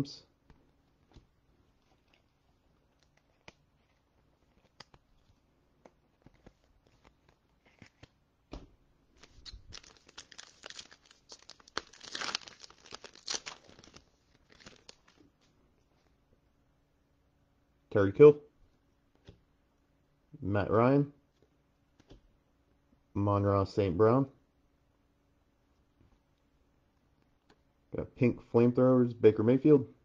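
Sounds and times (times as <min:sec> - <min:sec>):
foil wrapper tearing and crinkling: 0:09.2 - 0:15.2.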